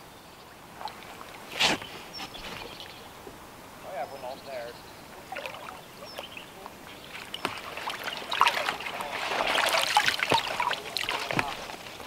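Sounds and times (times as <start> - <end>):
water splashing: 0.6 - 2.7, 5.2 - 12.0
water dripping off a sling: 5.3 - 12.0.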